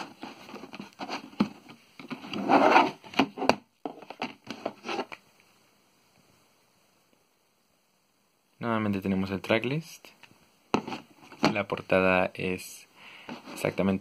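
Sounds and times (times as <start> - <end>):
plastic case scraping on cardboard: 0.0 - 5.2.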